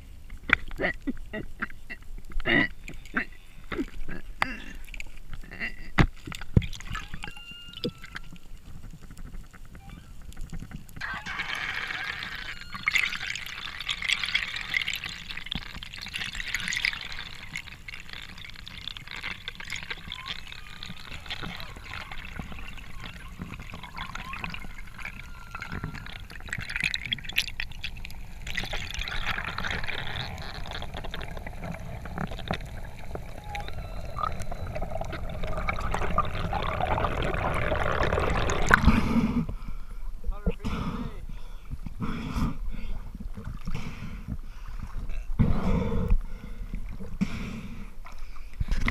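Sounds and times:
underwater rush of water: 10.6s - 39.6s
wavering tones: 11.0s - 38.8s.

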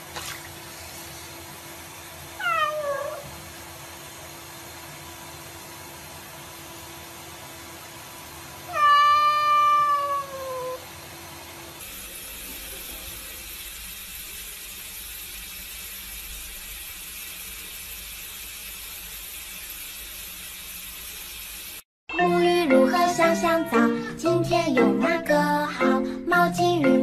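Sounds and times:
tap running into a sink: 0.0s - 0.6s
cat meowing: 2.4s - 3.3s, 8.7s - 10.8s.

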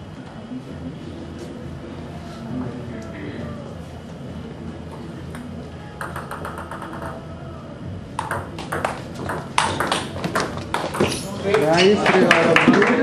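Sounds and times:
table tennis ball clicking: 6.0s - 7.2s, 8.2s - 11.2s.

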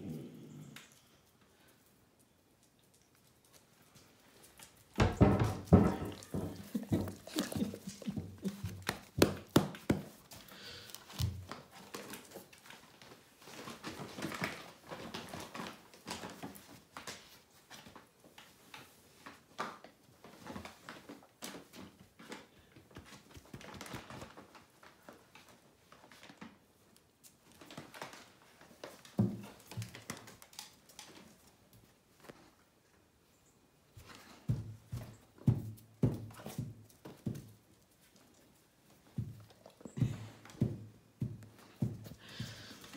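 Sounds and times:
dog claws clicking on floor: 0.8s - 32.5s.

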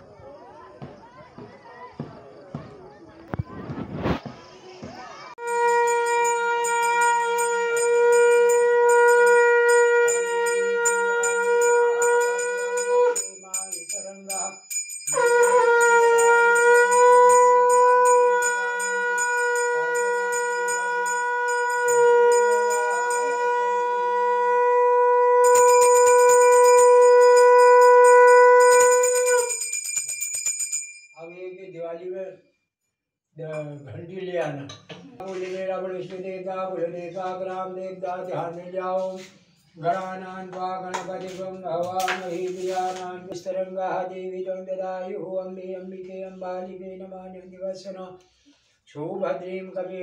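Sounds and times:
conch shell blown: 5.4s - 13.4s, 15.1s - 29.7s
brass hand bell ringing: 5.4s - 23.9s, 25.4s - 31.2s.

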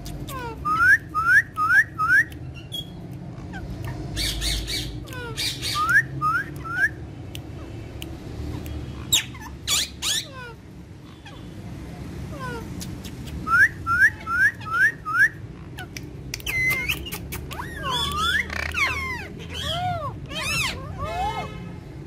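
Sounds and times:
parakeet whistled chirps: 0.6s - 3.0s, 4.2s - 7.0s, 13.4s - 15.4s, 16.4s - 21.4s
parakeet screeches: 8.9s - 11.6s, 13.9s - 21.8s.

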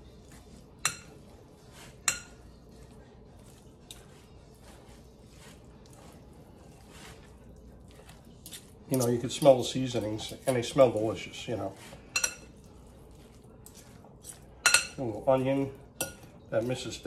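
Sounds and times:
soft scraping stirring: 0.0s - 17.0s
utensil clinking on glass bowl: 0.8s - 1.3s, 2.0s - 2.5s, 12.1s - 12.6s, 13.6s - 15.2s, 15.9s - 16.8s.

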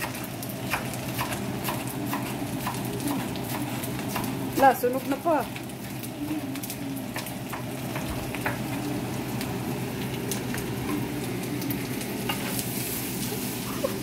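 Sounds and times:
sharp pops and crackles: 0.0s - 4.4s
pork sizzling in a skillet: 0.0s - 14.0s.

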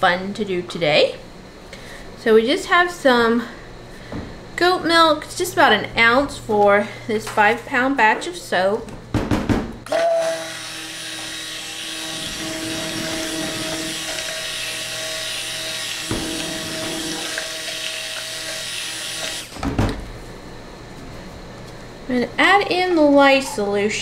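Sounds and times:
stick blender whirring: 9.9s - 19.6s.

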